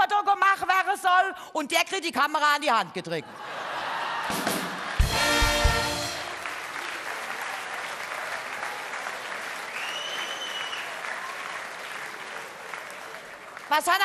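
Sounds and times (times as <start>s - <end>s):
audience applauding: 3.7s - 14.0s
short high whistle: 9.8s - 11.0s.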